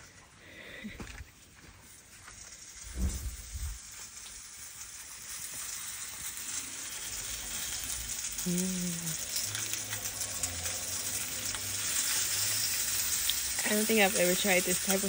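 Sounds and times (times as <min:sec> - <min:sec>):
fish sizzling on a griddle: 0:00.0 - 0:15.0
short voice sound: 0:08.4 - 0:09.2.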